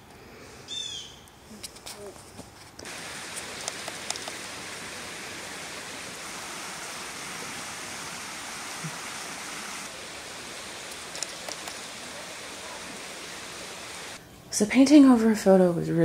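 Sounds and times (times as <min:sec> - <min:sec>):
creek flowing over rocks: 0:02.8 - 0:14.2.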